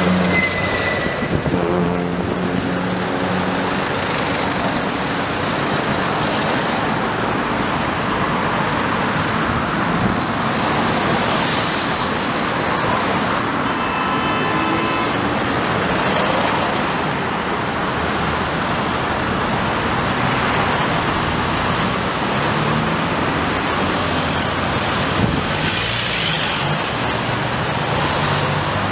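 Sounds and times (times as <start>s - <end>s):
vehicles driving past: 0.0s - 28.9s
high-pitched tone: 13.5s - 15.3s.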